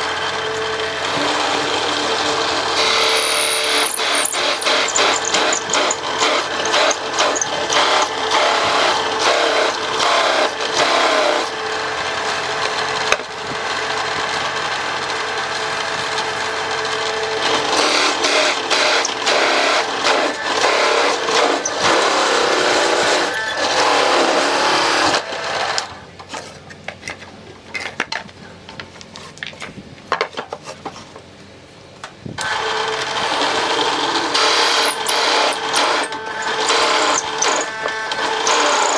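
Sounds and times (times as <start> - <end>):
drill press cutting wood: 0.0 - 13.2, 16.2 - 25.9, 32.4 - 38.9.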